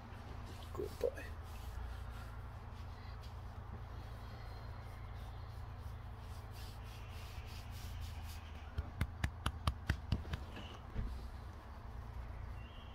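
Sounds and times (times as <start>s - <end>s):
hand rubbing and patting dog's coat: 0.1s - 12.3s
sharp taps: 8.7s - 10.7s.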